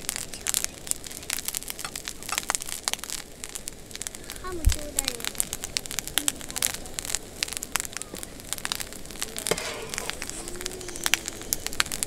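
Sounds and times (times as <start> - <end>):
rice balls grilling in a frying pan: 0.0 - 12.0.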